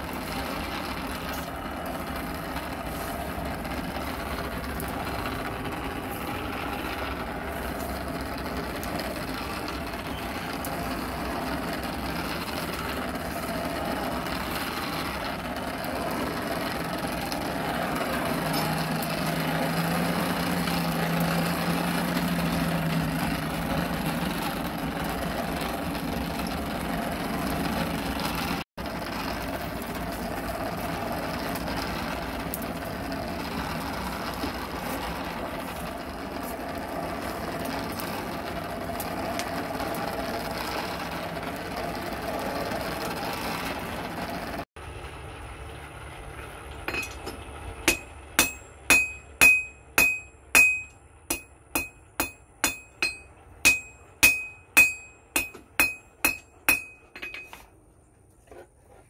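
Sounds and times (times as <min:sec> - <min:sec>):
forge fire rushing: 0:00.0 - 0:49.1
hammer ringing on anvil: 0:46.9 - 0:47.3, 0:47.9 - 0:57.6.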